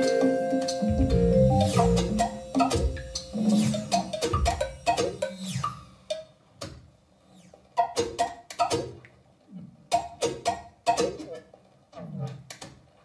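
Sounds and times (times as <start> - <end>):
low sustained tone: 0.0 - 3.5
hand percussion struck with mallets: 0.0 - 5.3.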